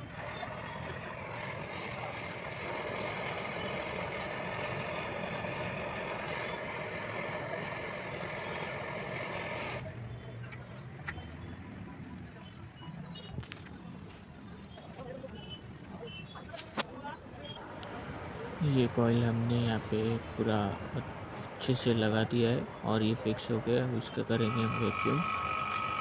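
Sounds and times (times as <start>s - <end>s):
gas torch flame hissing: 1.1s - 9.8s, 24.4s - 26.0s.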